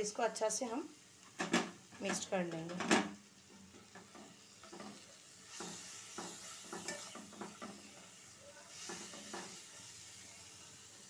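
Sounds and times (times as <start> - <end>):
faint frying sizzle: 0.0 - 11.0
spatula scraping pan: 3.6 - 10.8.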